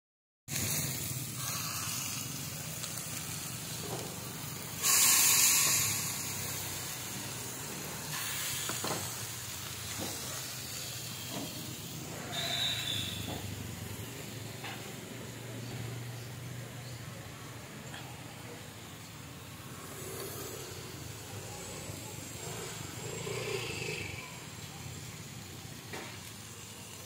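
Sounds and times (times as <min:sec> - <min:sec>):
meat sizzling on a grill pan: 0:00.5 - 0:18.4, 0:19.0 - 0:27.0.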